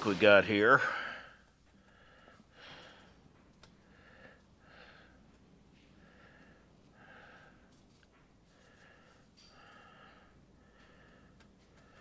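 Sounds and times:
person breathing faintly: 0.8 - 12.0.

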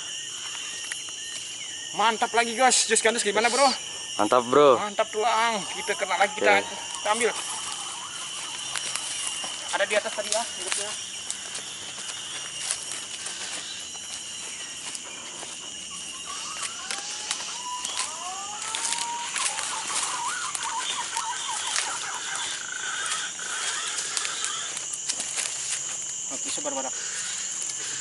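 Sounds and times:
insect drone: 0.0 - 28.0
short rising whistled calls: 5.5 - 9.4, 15.8 - 24.7
footsteps crunching through dry leaves: 5.8 - 28.0
twigs snapping: 8.4 - 13.2, 16.6 - 21.9.

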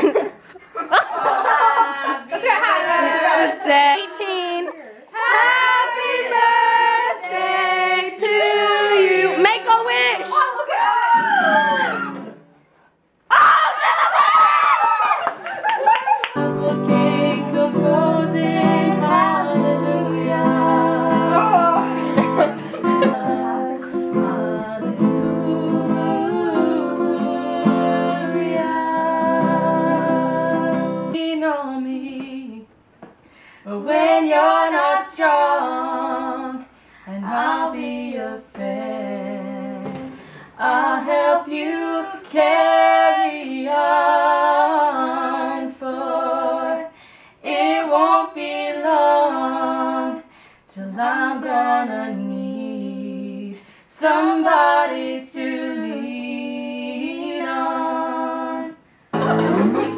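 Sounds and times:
two women singing: 1.7 - 12.4, 16.2 - 32.7, 33.6 - 59.9
plucked acoustic guitar: 16.4 - 31.2, 59.1 - 59.9.

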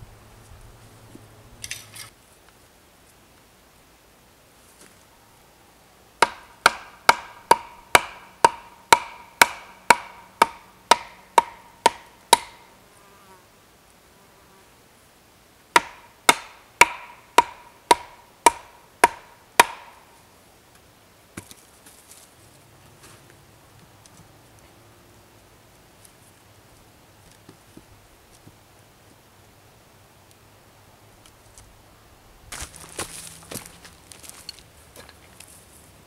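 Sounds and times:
log pounding wooden post: 6.2 - 12.6, 15.8 - 20.0.

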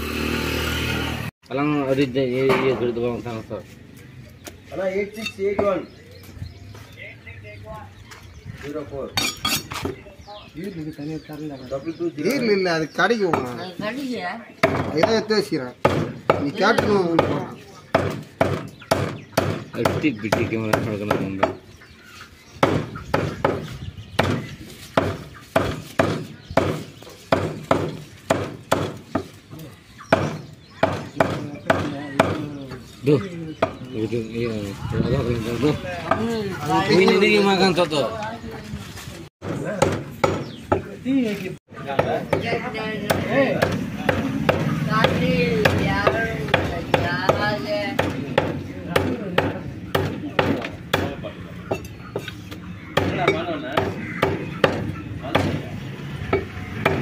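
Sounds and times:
cleaver chopping on wooden block: 14.6 - 21.6, 22.6 - 29.4, 30.1 - 32.4, 39.4 - 40.8, 41.9 - 52.3, 56.2 - 57.0.

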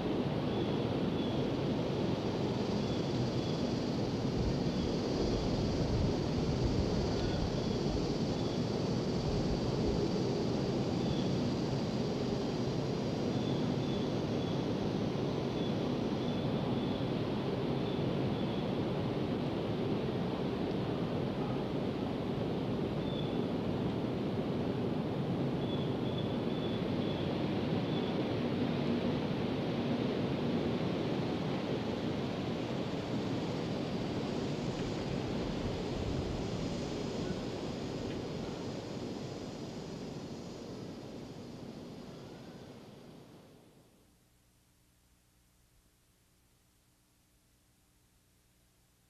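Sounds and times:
steady rushing noise: 28.3 - 42.1.

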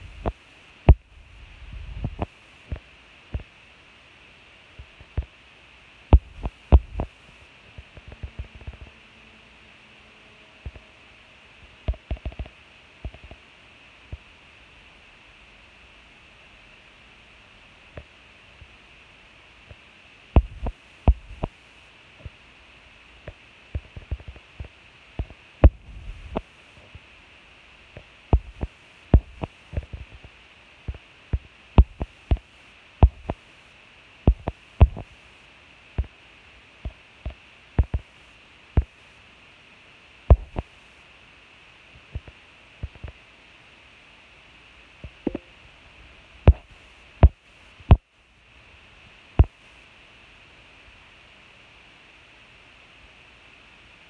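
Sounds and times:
steady hiss: 0.0 - 54.0
dull low thumps: 6.2 - 7.1, 20.4 - 21.5, 34.3 - 35.0.

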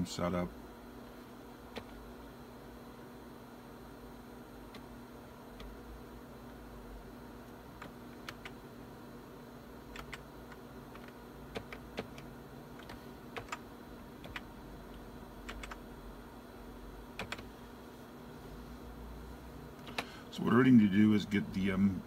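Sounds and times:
steady low hum: 0.0 - 22.0
computer keyboard keys clicking: 7.8 - 8.6, 9.9 - 13.6, 14.2 - 14.5, 15.4 - 15.8, 17.2 - 17.5.

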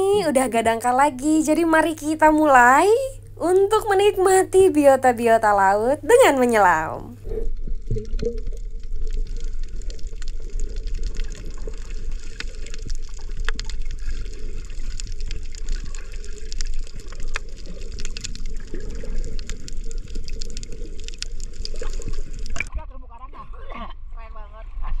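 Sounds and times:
muffled underwater rumble: 0.0 - 25.0.

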